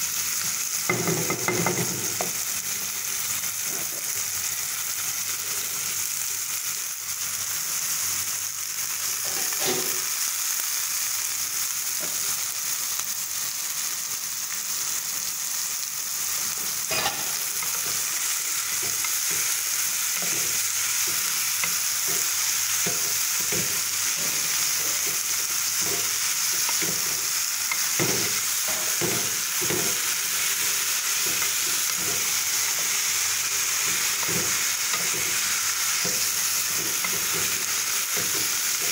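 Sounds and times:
vegetables sizzling in oil: 0.0s - 38.9s
wooden spatula scraping a pan: 9.2s - 10.1s, 16.7s - 19.6s.

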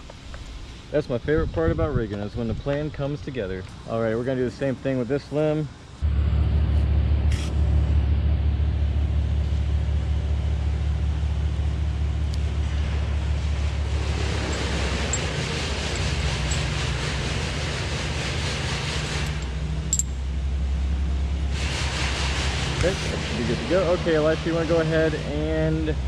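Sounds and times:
engine idling: 6.0s - 26.0s
hiss: 13.7s - 19.6s, 21.4s - 25.2s.

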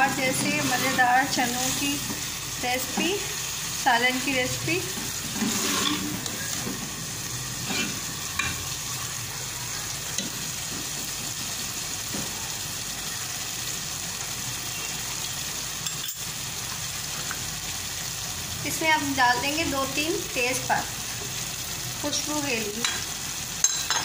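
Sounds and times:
chickpeas sizzling in a pot: 0.0s - 24.0s
ladle scraping a metal pot: 0.2s - 1.4s, 5.3s - 6.3s.

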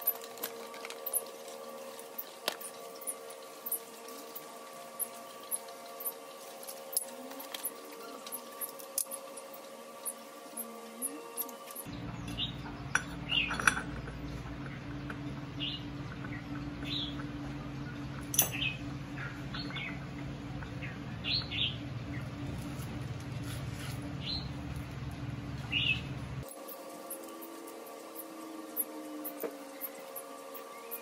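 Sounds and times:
bird chirping: 0.0s - 22.5s, 25.6s - 31.0s
steady low hum: 0.0s - 31.0s
metal parts clinking: 12.9s - 14.1s, 18.3s - 18.6s.

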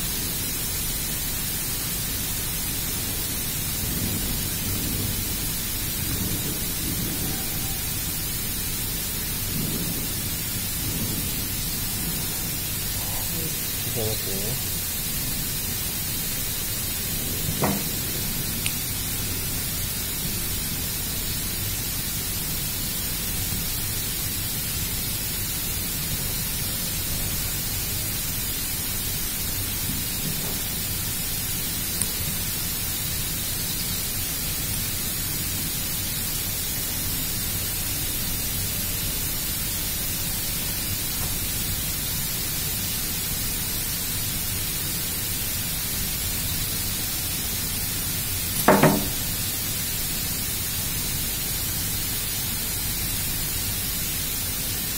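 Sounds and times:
steady background hiss: 0.0s - 54.9s
short knock: 17.6s - 18.0s, 48.6s - 49.3s.

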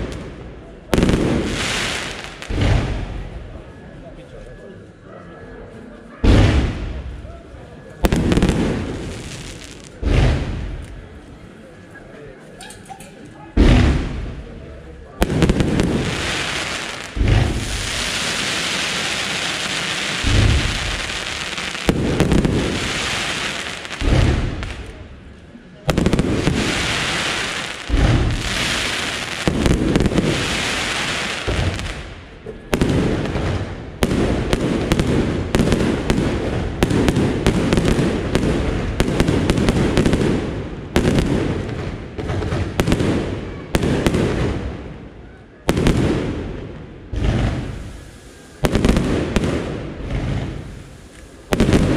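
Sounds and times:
crackling hiss of stars: 6.7s - 13.1s, 13.7s - 40.6s, 47.1s - 51.9s.

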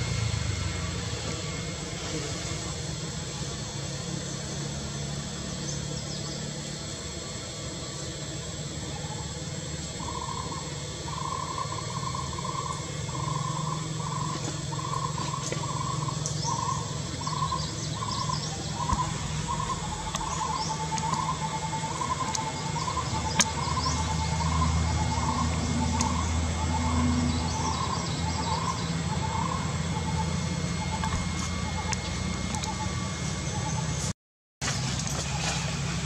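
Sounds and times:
low steady rumble: 0.0s - 34.1s
birds chirping high: 10.0s - 34.1s.

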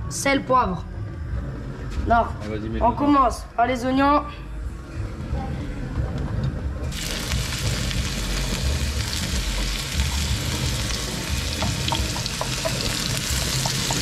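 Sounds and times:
onion sizzling in hot oil: 6.9s - 14.0s.

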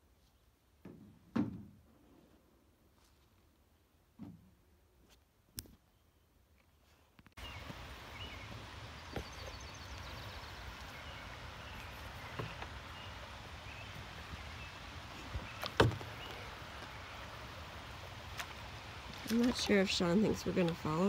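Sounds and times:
steady low background noise: 7.4s - 21.0s
canoe knocking: 12.2s - 13.2s, 15.3s - 16.4s.

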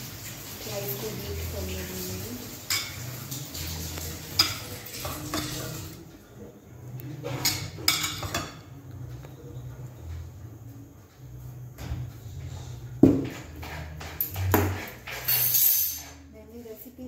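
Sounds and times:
spoon scraping a pan: 13.2s - 16.8s.

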